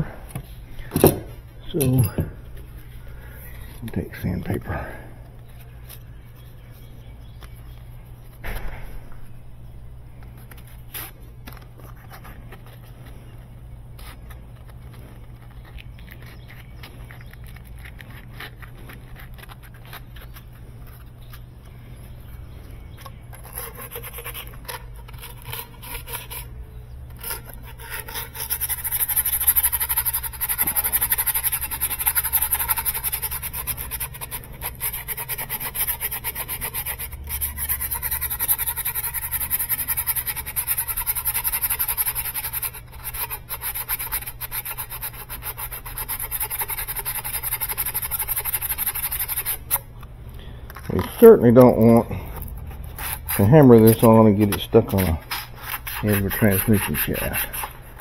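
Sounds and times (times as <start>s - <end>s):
sandpaper rasping on brass tube: 23.3s - 26.5s, 27.2s - 49.8s, 52.9s - 58.0s.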